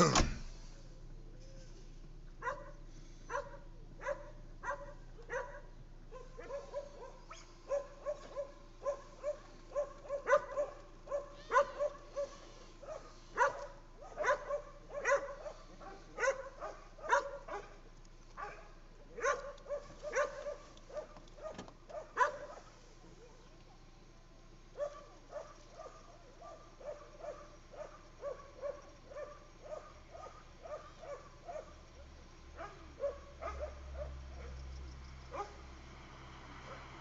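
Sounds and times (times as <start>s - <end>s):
dog barking: 2.4s - 17.8s, 18.4s - 23.4s, 24.7s - 31.8s, 32.6s - 34.6s, 35.3s - 35.6s.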